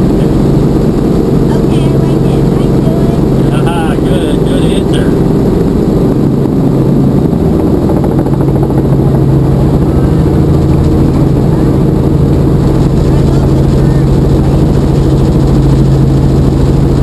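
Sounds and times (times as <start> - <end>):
helicopter engine and rotor: 0.0 - 17.0.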